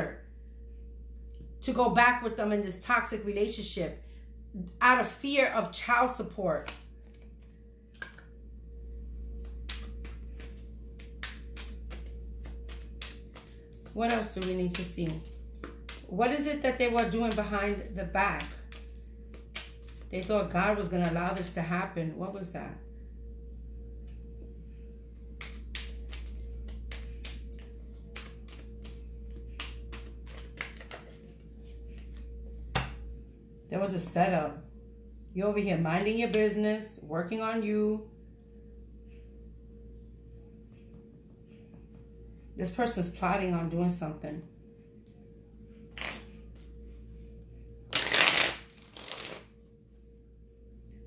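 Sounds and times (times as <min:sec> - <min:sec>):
droning background music: 0:00.0 - 0:51.0
steady low hum: 0:00.0 - 0:51.0
cards clicking and tapping: 0:09.4 - 0:21.6, 0:25.4 - 0:31.2.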